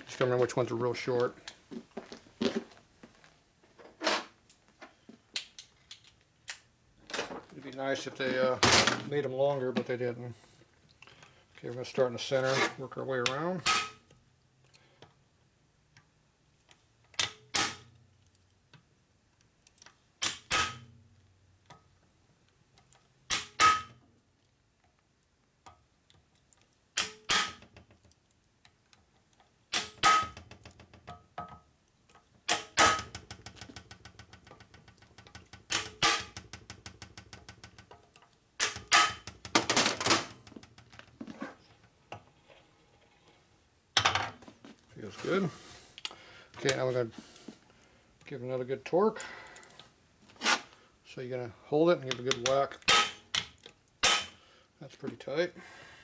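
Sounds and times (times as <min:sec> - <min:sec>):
hammer striking impact driver: 0:29.7 - 0:30.4.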